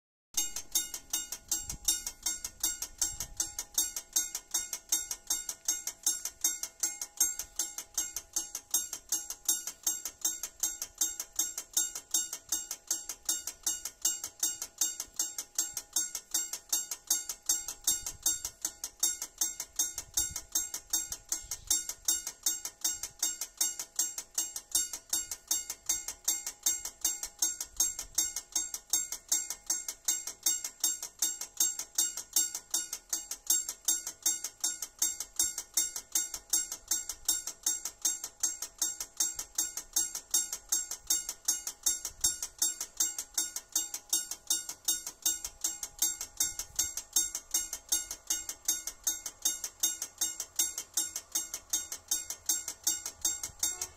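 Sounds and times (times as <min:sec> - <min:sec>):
level crossing warning bell ringing: 0:53.3 - 0:53.9.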